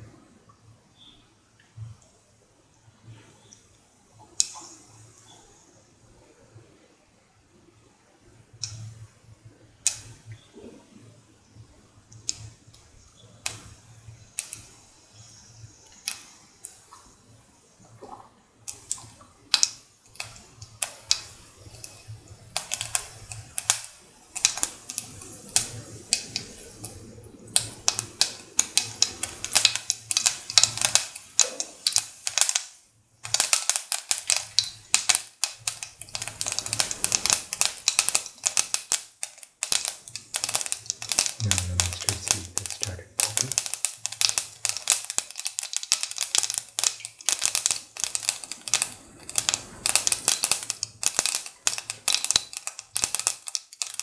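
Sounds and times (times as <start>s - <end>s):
mustard seeds popping in oil: 4.2s - 5.3s, 9.8s - 10.7s, 13.4s - 17.1s, 17.9s - 54.0s.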